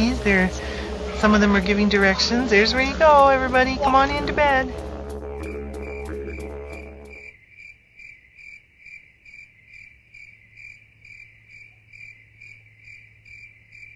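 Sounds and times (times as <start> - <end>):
faint low hum: 0.0 - 7.3
cricket chirping: 5.8 - 13.9.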